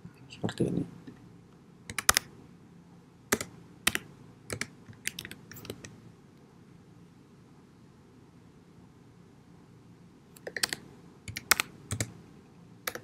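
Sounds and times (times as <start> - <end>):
computer keyboard typing: 1.9 - 2.3, 3.3 - 6.0, 10.4 - 12.2.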